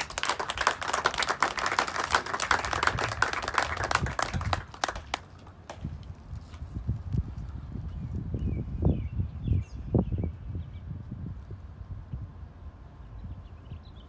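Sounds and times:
crowd clapping: 0.0s - 5.8s.

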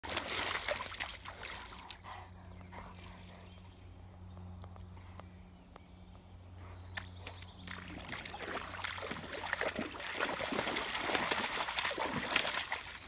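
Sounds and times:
paws splashing in mud: 0.0s - 3.6s, 6.6s - 13.0s.

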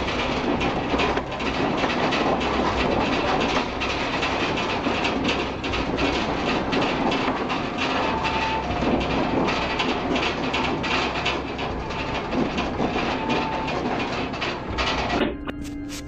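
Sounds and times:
windows and furniture clattering: 0.0s - 15.6s
low earthquake rumble: 0.0s - 15.9s.

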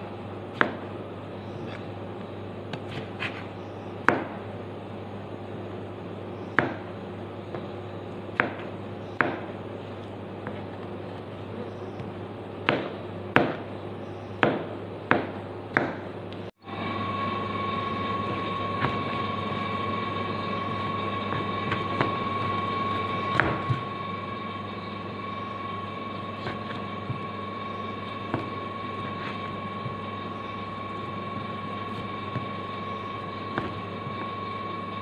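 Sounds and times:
humming drone with whine: 0.0s - 35.0s
low steady hum: 0.0s - 35.0s
knife chopping on wooden board: 0.5s - 0.8s, 4.0s - 4.4s, 6.6s - 6.9s, 8.4s - 9.5s, 12.0s - 13.7s, 14.4s - 16.1s, 23.3s - 23.9s, 26.4s - 27.3s, 28.0s - 30.0s, 33.5s - 34.2s.

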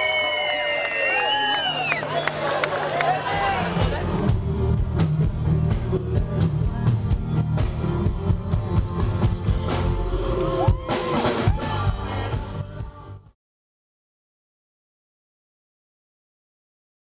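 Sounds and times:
live pop-rock band: 3.1s - 13.3s
person singing: 3.3s - 13.4s
steady drum beat: 3.4s - 13.1s.

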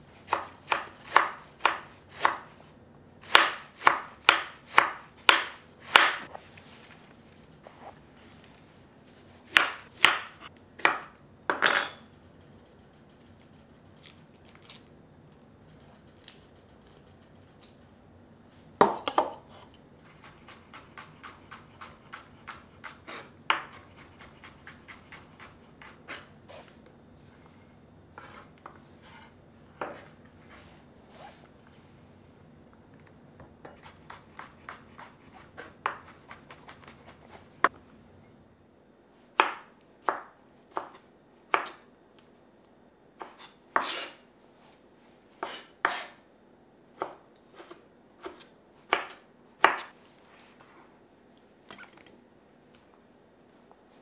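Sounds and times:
knife chopping on wooden board: 0.3s - 2.4s, 3.3s - 6.3s, 47.0s - 49.9s.

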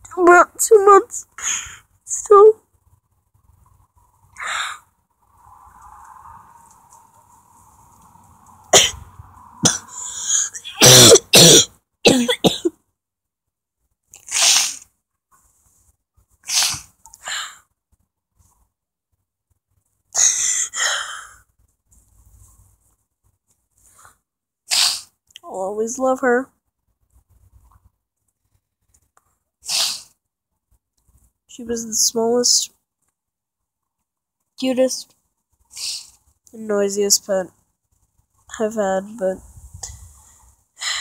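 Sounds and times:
person coughing: 8.8s - 9.0s, 9.6s - 9.9s, 10.6s - 12.7s.

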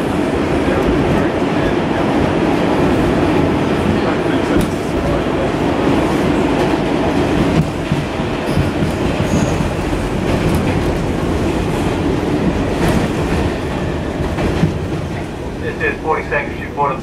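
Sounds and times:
subway wheels rumbling on rail: 0.0s - 17.0s
clacks over rail joints: 6.0s - 15.4s.

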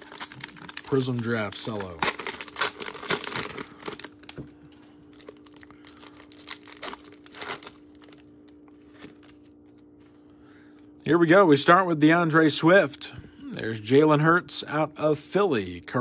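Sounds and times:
cellophane crinkling and tearing: 0.0s - 10.0s
faint hum: 0.0s - 16.0s.

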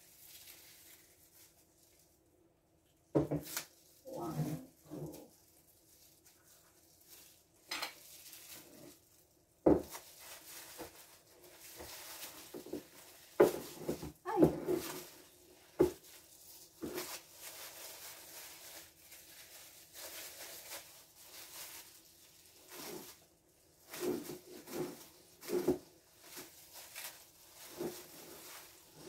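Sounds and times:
rustling handling noises: 0.0s - 2.3s, 2.9s - 29.0s.

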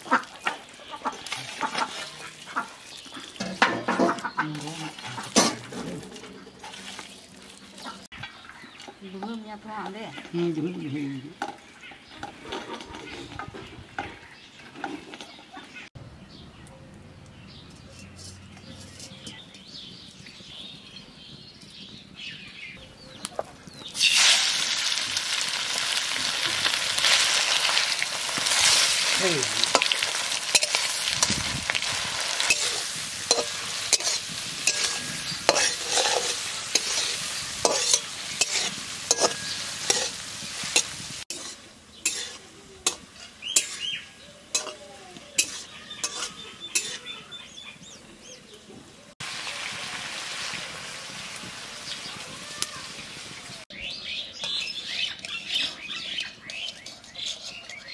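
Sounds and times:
chicken sizzling in hot oil: 0.0s - 8.5s, 23.3s - 47.8s, 49.1s - 54.7s
metal spatula scraping pan: 17.7s - 19.4s, 28.4s - 44.8s, 45.4s - 47.2s, 55.5s - 57.9s.

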